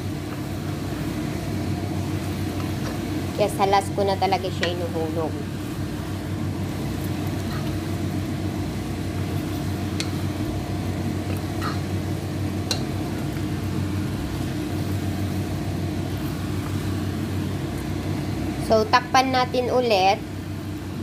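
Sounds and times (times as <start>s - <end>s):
steady low hum: 0.0s - 21.0s
spatula clicking against pan: 12.6s - 12.9s.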